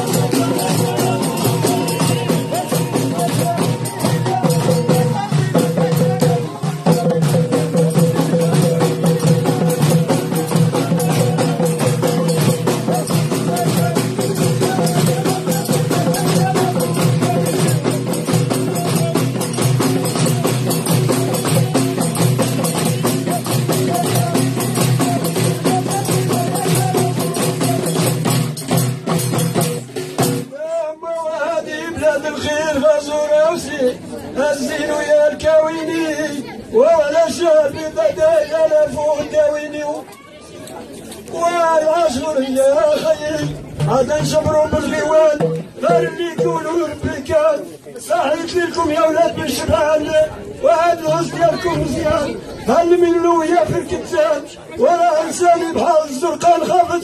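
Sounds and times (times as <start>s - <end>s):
frame drums beaten in rhythm: 0.0s - 30.6s, 42.9s - 47.5s.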